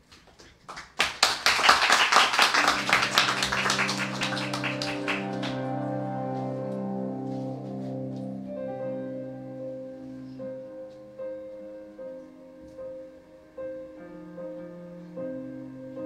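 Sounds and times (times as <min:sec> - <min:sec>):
audience clapping: 0:00.2 - 0:05.9
slow piano chords: 0:02.3 - 0:16.0.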